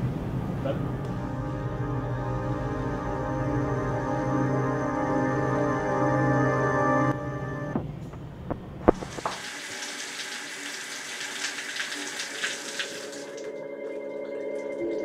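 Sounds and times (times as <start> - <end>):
water running from a tap: 8.9 - 15.0.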